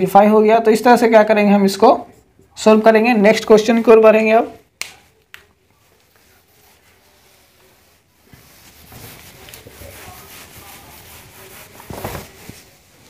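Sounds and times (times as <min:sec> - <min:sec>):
hand rubbing whiteboard: 0:05.8 - 0:13.0.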